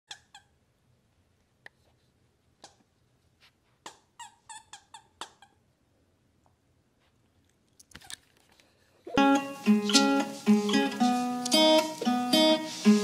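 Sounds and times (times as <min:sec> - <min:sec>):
high toy squeaks: 0:03.9 - 0:05.6.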